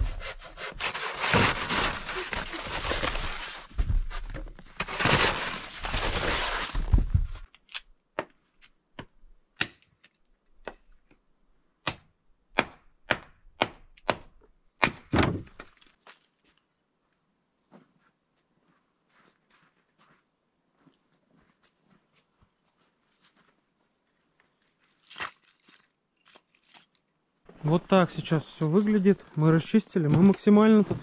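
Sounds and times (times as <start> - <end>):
snow shovel scraping snow: 0.0 - 3.7, 4.8 - 7.0
hatchet chopping firewood: 9.0 - 9.9, 11.8 - 15.1.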